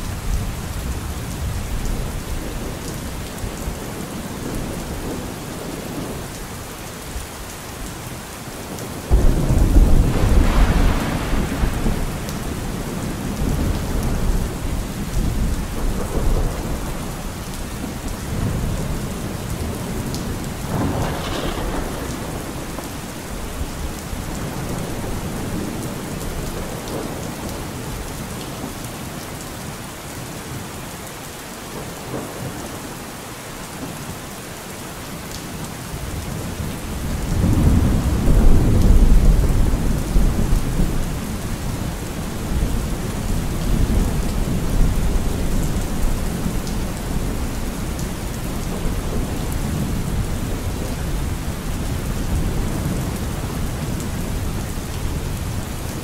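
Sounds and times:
steady rain: 0.0s - 56.0s
thunder rumbling: 9.0s - 28.1s, 36.4s - 56.0s.

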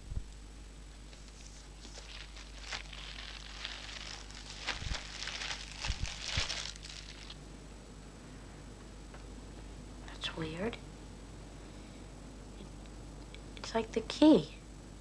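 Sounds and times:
plastic bag crinkling: 1.1s - 7.4s.

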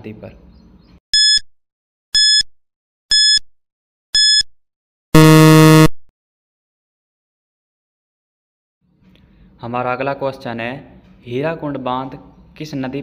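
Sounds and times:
low buzzer: 1.2s - 1.4s, 2.2s - 2.5s, 3.1s - 3.4s, 4.2s - 4.5s, 5.2s - 6.1s
short high beeps: 1.2s - 1.4s, 2.2s - 2.5s, 3.1s - 3.4s, 4.2s - 4.5s, 5.2s - 6.0s.

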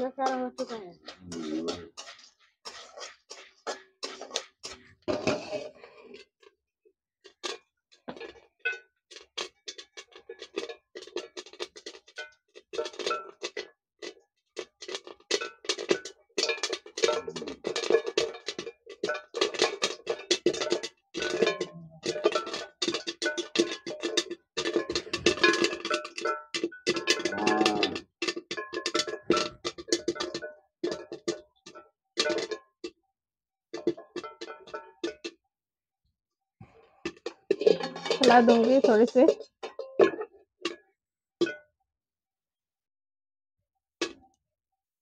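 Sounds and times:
corn kernels popping under metal lid: 0.0s - 6.2s, 9.1s - 31.4s, 37.1s - 40.3s.

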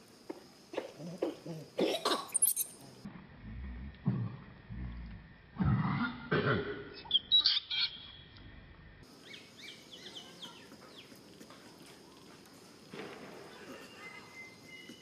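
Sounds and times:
monkey grunting: 0.8s - 3.0s
monkey high-pitched squeaks: 2.2s - 2.8s
faint bird chirping: 9.1s - 11.2s, 13.4s - 15.0s.

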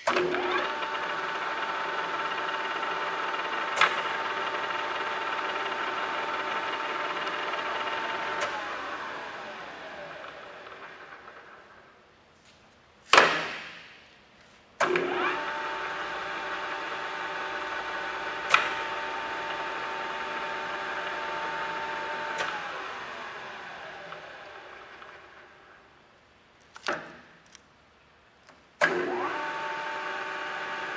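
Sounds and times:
lathe spindle gear whine: 0.1s - 11.8s, 15.0s - 25.8s, 28.9s - 30.9s
lathe switch click: 18.4s - 18.9s.

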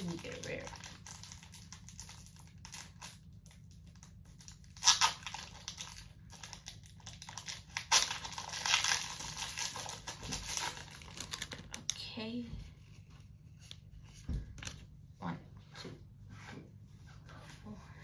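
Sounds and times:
foil wrapper crinkling and tearing: 0.0s - 12.2s.

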